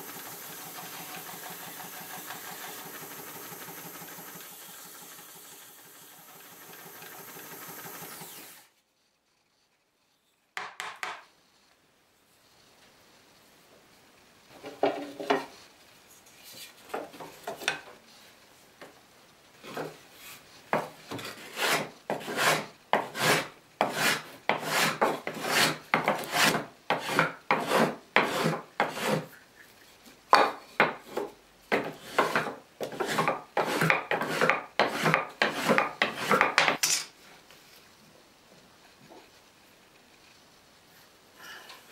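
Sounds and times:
hand tool shaving wood: 0:21.2 - 0:29.3, 0:31.1 - 0:36.7.

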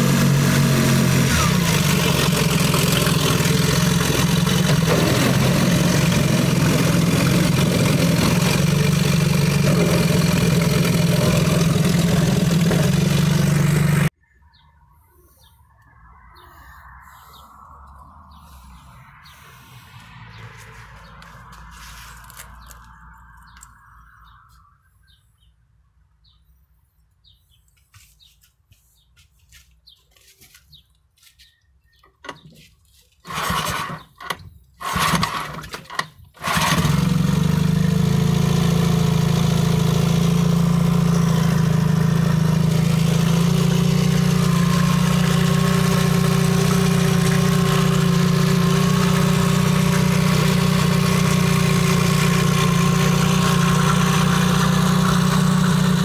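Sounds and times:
outboard engine cranking: 0:00.0 - 0:14.1, 0:33.2 - 0:38.2
outboard engine idling: 0:01.6 - 0:14.1.

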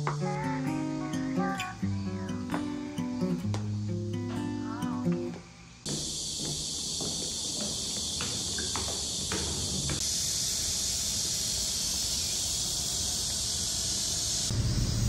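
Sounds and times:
cicadas droning: 0:00.0 - 0:15.0
footsteps on pavement: 0:03.4 - 0:03.8, 0:05.0 - 0:10.1.

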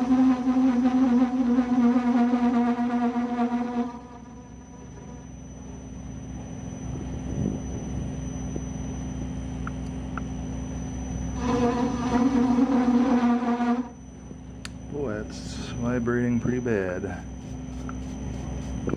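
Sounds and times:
metal lathe rumbling: 0:00.0 - 0:07.4, 0:11.2 - 0:14.0
tool chatter buzz: 0:00.0 - 0:09.4, 0:10.1 - 0:18.9.

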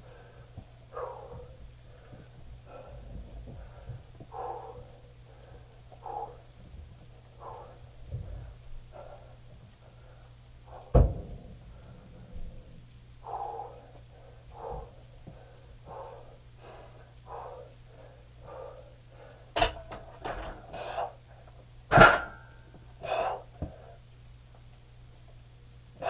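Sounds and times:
man breathing hard: 0:00.0 - 0:19.7, 0:20.3 - 0:21.4, 0:23.0 - 0:24.1.

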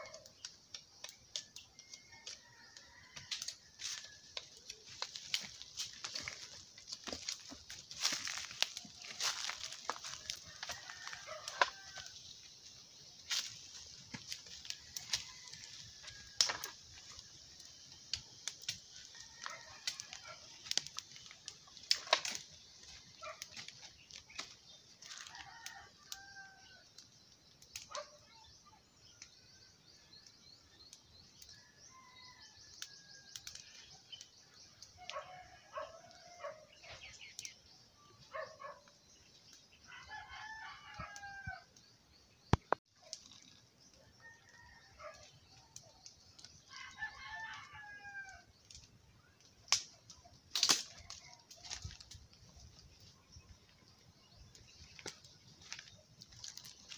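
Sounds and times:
rooster crowing: 0:01.7 - 0:04.4, 0:09.2 - 0:12.2, 0:14.6 - 0:16.7, 0:19.0 - 0:20.5, 0:25.1 - 0:26.8, 0:39.8 - 0:41.7, 0:44.2 - 0:45.2, 0:46.7 - 0:48.5.

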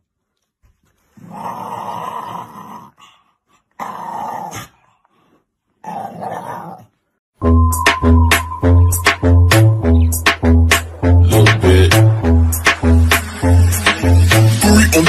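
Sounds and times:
dog growling: 0:01.2 - 0:03.2, 0:05.8 - 0:06.9.

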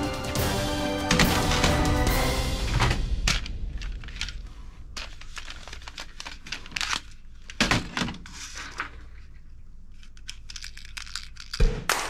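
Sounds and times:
plastic toy guns clattering: 0:10.0 - 0:11.7.

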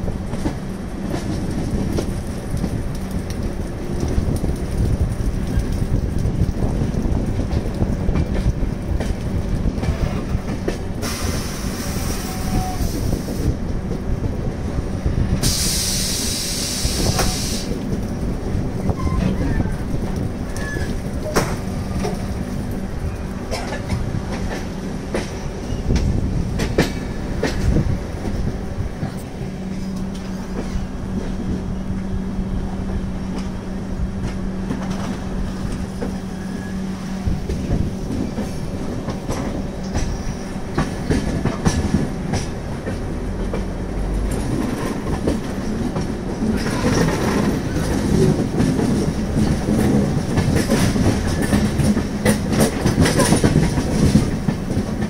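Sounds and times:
wheels clicking over rail joints: 0:00.0 - 0:11.1, 0:37.3 - 0:55.0
train coach rumble and hum: 0:00.0 - 0:55.0.

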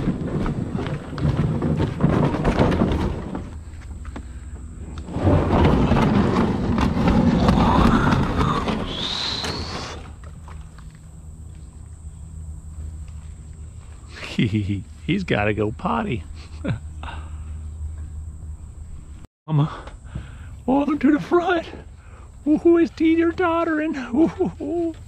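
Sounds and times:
canoe grinding slide: 0:00.0 - 0:10.8
canoe hull scraping over ground: 0:00.0 - 0:19.2
brief squeal: 0:08.7 - 0:10.1.

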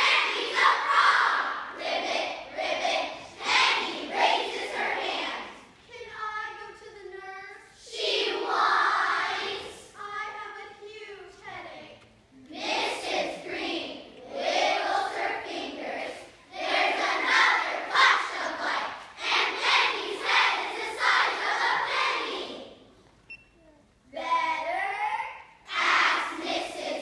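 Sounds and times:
children reciting in unison: 0:00.0 - 0:05.8, 0:07.8 - 0:10.2, 0:12.4 - 0:22.8, 0:25.6 - 0:27.0.

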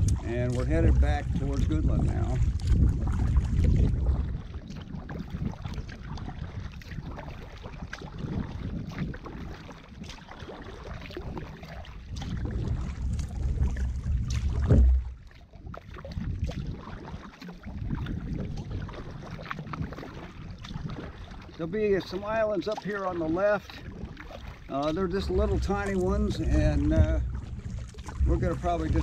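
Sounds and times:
kayak paddle strokes in water: 0:00.0 - 0:29.0
wind rumbling on microphone: 0:00.0 - 0:29.0.

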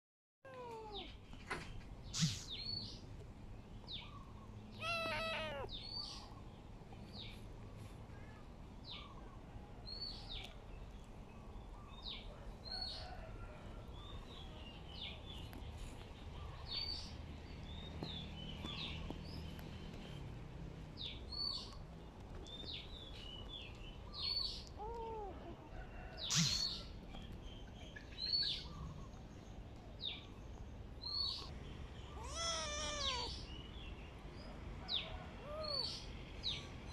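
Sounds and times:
kitten meowing: 0:00.5 - 0:01.1, 0:04.8 - 0:05.8, 0:24.8 - 0:25.4, 0:32.2 - 0:33.4
small birds chirping: 0:00.5 - 0:13.2, 0:13.8 - 0:36.9.

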